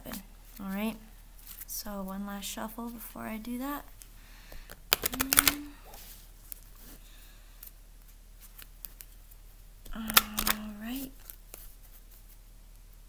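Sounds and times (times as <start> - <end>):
cards tapping and rustling: 4.5 - 6.0, 9.9 - 11.7
cards being shuffled: 4.6 - 6.9, 9.9 - 12.4.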